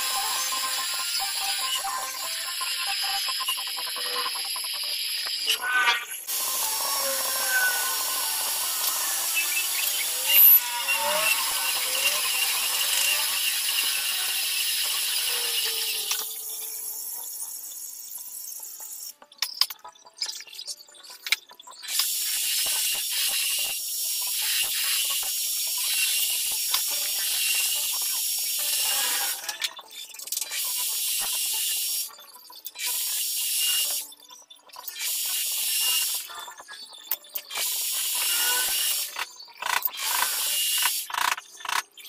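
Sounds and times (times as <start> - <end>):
metal lathe cutting hiss: 6.3 - 16.4, 21.9 - 29.4, 37.5 - 39.1.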